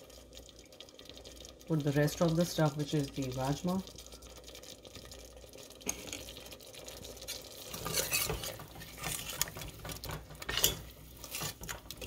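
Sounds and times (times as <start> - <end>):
ladle scraping metal pot: 7.2 - 12.0.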